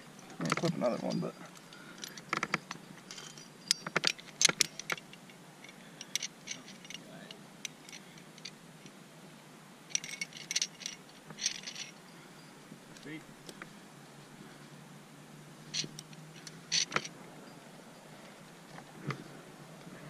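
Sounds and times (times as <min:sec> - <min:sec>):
climbing gear clinking and jangling: 0:00.1 - 0:08.9, 0:09.9 - 0:13.2, 0:15.7 - 0:17.1
carabiner clicking: 0:01.5 - 0:07.0, 0:09.9 - 0:12.0, 0:15.7 - 0:17.1.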